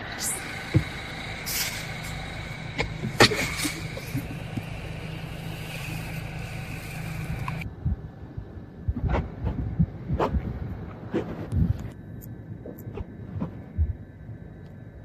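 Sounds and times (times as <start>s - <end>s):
truck engine idling: 0.0s - 7.6s
steady hiss: 0.0s - 7.7s
sharp clicks: 5.4s - 7.7s.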